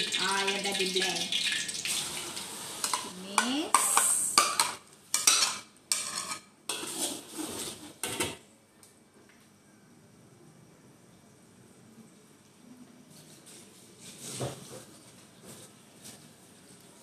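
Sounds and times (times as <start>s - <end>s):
paste sizzling in hot oil: 0.0s - 7.5s
metal spatula scraping a wok: 1.9s - 8.3s
metal ladle scraping a plate: 2.5s - 8.2s.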